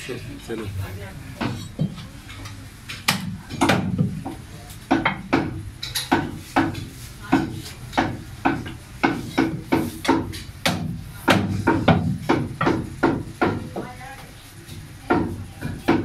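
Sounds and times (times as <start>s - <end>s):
cleaver chopping meat on wood: 3.1s - 13.7s, 15.1s - 16.0s.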